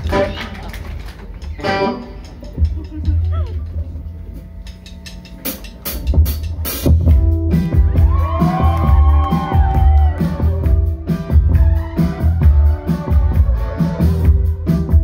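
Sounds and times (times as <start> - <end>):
live rock band playing: 5.4 - 15.0.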